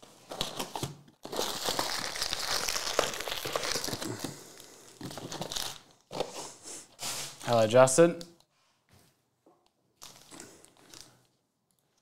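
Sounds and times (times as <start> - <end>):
foil packs crinkling: 0.0 - 7.4, 10.0 - 11.2.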